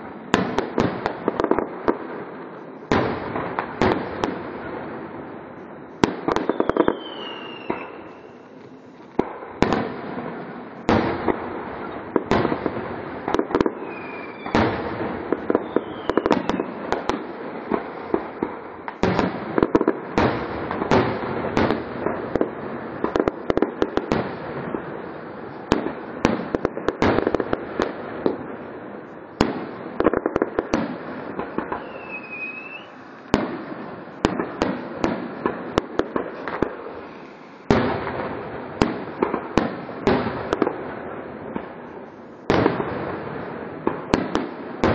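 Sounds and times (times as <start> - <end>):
fireworks bangs and crackling: 0.0 - 44.9
fireworks whistles falling in pitch: 6.2 - 9.0, 13.3 - 17.2, 31.4 - 35.2, 36.0 - 38.2.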